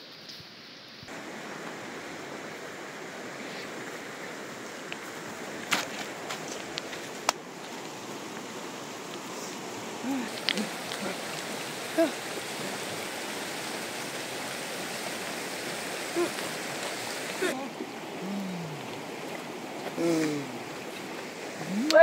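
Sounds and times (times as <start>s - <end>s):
river rushing over gravel: 1.1s - 22.0s
short voice sounds: 10.0s - 11.2s, 16.1s - 16.4s, 20.0s - 20.6s, 21.6s - 22.0s.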